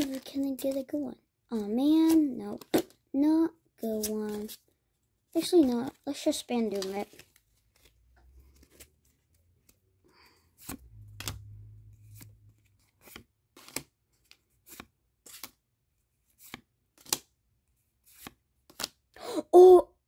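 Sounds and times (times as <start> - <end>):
cards rustling in hands: 0.0 - 2.9, 3.8 - 4.8, 5.4 - 19.1
trading cards snapping: 16.4 - 17.3.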